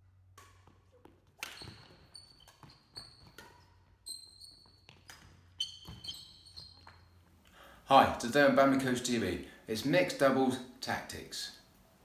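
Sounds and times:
badminton racket strikes: 0.2 - 3.9
shoes squeaking on floor: 0.5 - 7.4.

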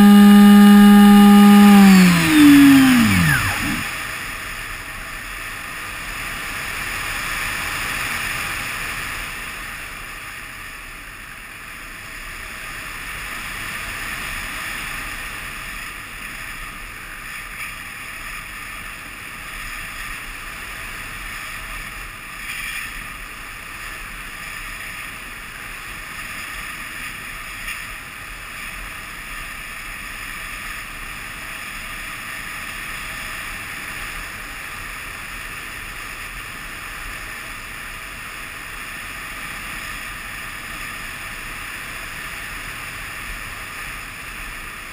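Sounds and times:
electric motor and propeller: 0.0 - 4.0.

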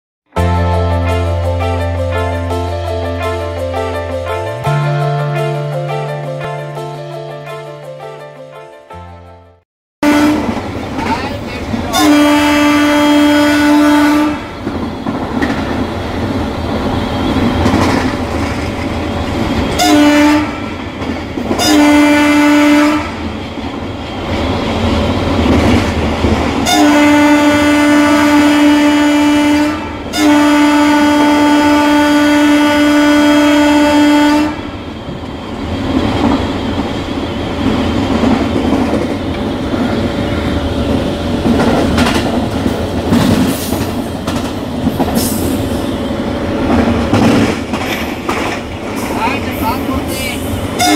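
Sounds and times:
locomotive horn blasts: 10.0 - 10.6, 11.9 - 14.5, 19.8 - 20.7, 21.6 - 23.3, 26.6 - 34.7
locomotive rumble and wheel clatter: 10.4 - 50.9.

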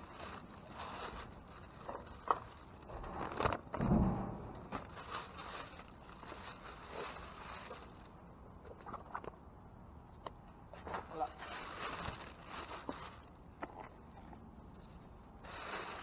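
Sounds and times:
bags and packaging rustling: 0.0 - 9.3, 10.7 - 16.0
dull heavy thump: 3.8 - 4.9.

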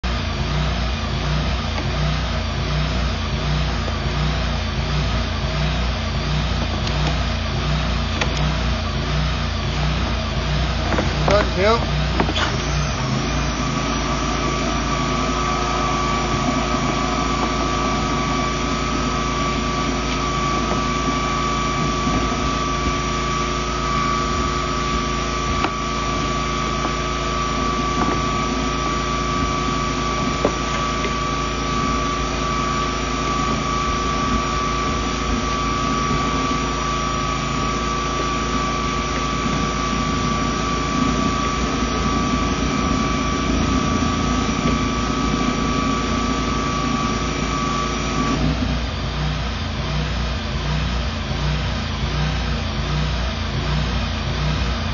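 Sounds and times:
high-pressure pump droning: 0.0 - 54.9
steady high whine: 0.0 - 54.9.

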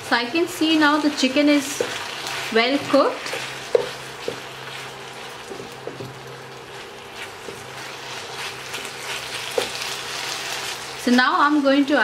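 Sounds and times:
chicken sizzling in hot oil: 0.0 - 12.0
spatula scraping and tapping pan: 1.6 - 10.0.

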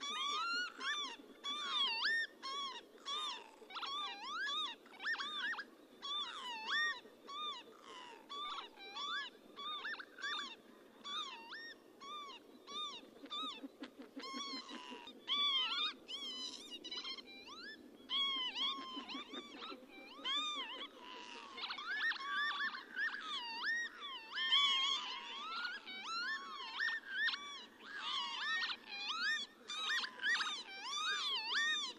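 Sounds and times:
low background noise: 0.0 - 31.9.

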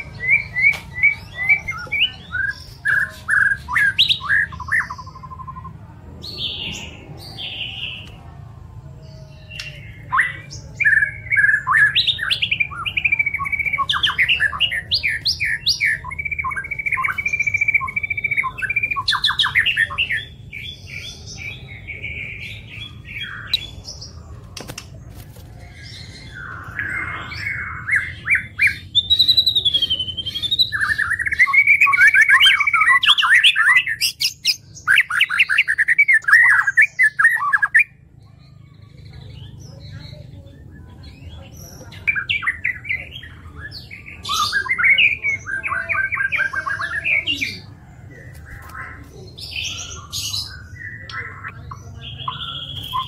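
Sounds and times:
songbird whistling and trilling: 9.6 - 21.0, 25.8 - 38.0, 49.4 - 53.0.

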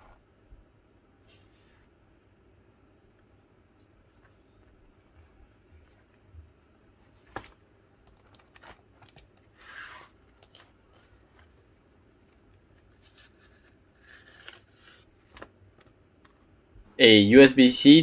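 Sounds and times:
cardboard rustling: 3.4 - 16.3.

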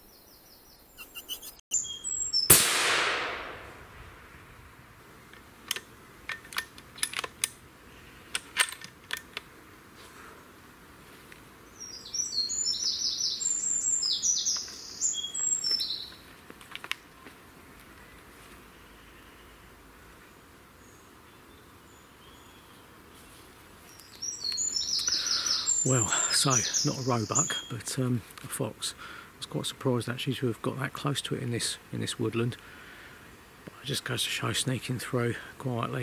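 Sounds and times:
small bird chirping: 0.0 - 2.5, 11.6 - 16.2, 23.8 - 27.8
rifle shot: 2.5 - 4.4.

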